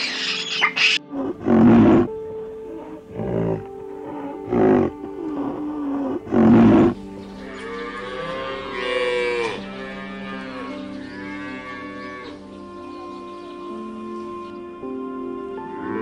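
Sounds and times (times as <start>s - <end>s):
background music: 0.0s - 16.0s
cattle mooing: 1.0s - 13.1s.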